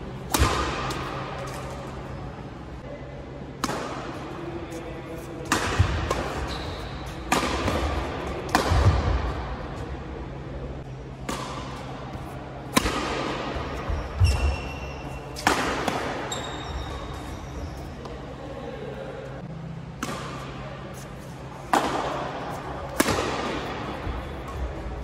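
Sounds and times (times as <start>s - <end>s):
rackets striking shuttlecock: 0.2s - 1.8s, 3.6s - 4.2s, 5.4s - 9.2s, 21.6s - 24.9s
shoe squeaks: 6.3s - 7.2s, 13.8s - 15.4s, 16.2s - 18.0s.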